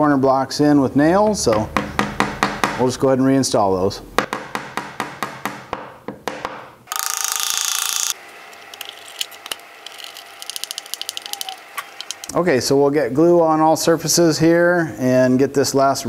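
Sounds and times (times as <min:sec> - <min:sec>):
hammer tapping nails: 0:04.2 - 0:06.7
screwdriver ratchet clicks: 0:06.9 - 0:12.3.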